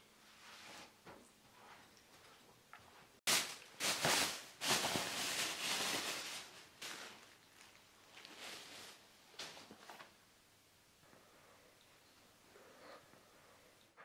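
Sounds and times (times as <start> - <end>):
plastic bag crinkling: 3.3 - 10.1.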